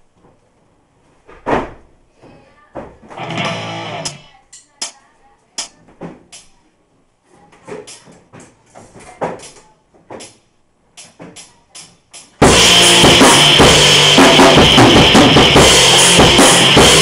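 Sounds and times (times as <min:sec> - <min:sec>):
ringing chord: 0:03.2 - 0:04.3
sharp instrument hits: 0:03.2 - 0:04.3.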